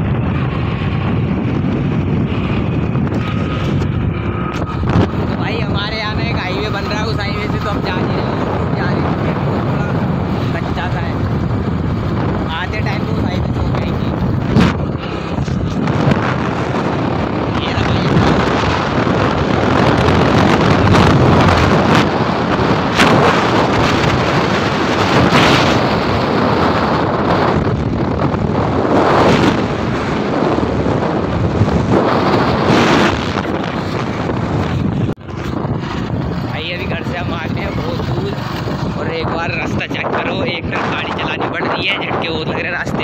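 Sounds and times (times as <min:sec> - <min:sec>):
road noise: 0:00.0 - 0:43.0
wind buffeting microphone: 0:00.0 - 0:43.0
motorbike engine: 0:09.4 - 0:39.4.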